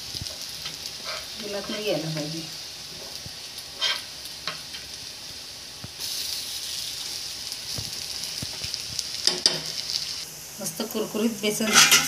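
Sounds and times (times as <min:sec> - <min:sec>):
oil sizzling in a pan: 0:00.0 - 0:12.0.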